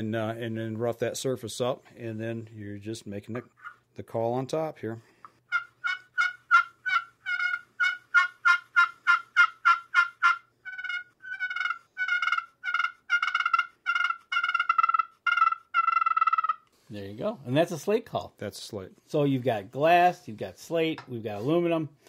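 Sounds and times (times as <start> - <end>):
turkey pot call yelps: 5.5 - 16.7.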